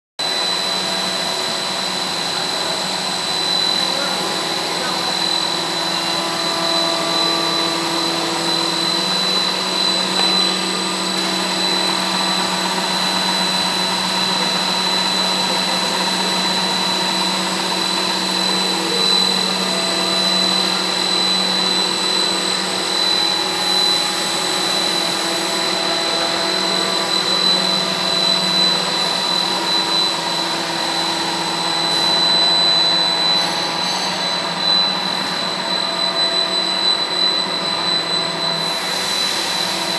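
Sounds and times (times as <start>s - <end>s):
extrusion machine drone: 0.2s - 39.9s
high machine whine: 0.2s - 39.9s.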